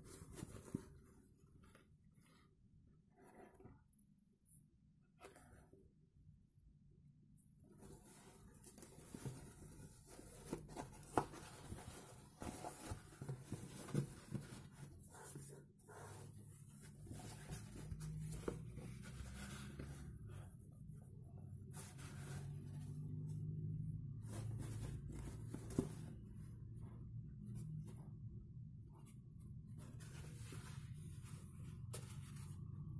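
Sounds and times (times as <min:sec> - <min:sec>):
fabric rustling: 0:07.7 - 0:23.5, 0:24.1 - 0:28.2.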